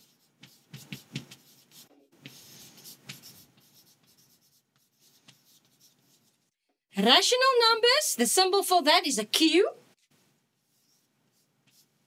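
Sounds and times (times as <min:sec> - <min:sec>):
chalk writing on chalkboard: 0:00.0 - 0:06.6, 0:10.6 - 0:12.0.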